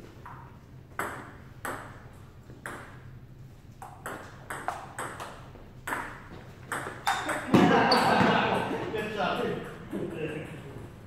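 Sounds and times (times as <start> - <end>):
ping-pong ball clicking off paddles: 0.2 - 3.1, 3.8 - 8.8.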